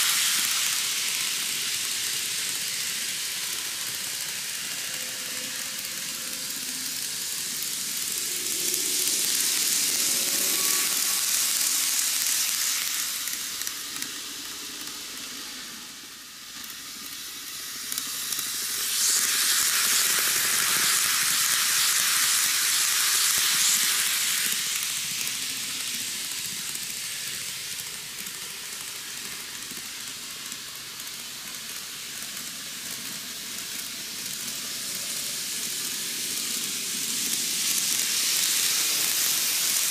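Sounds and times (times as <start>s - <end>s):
model trains running on track: 0.0s - 39.9s.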